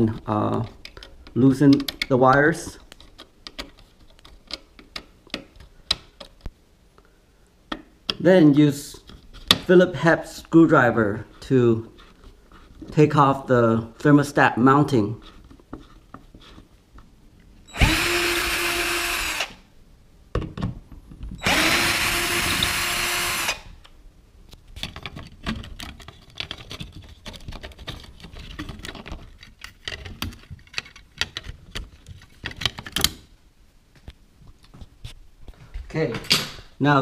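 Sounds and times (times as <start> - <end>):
power screwdriver whine: 17.7 - 19.6, 21.4 - 23.7.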